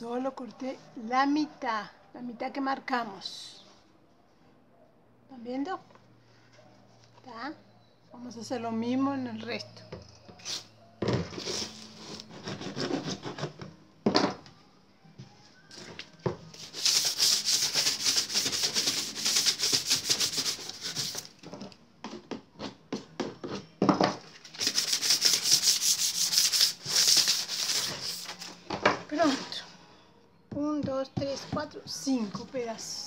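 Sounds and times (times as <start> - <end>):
sandpaper rasping on plastic pipe: 11.4 - 13.5, 16.6 - 21.3, 24.5 - 28.4.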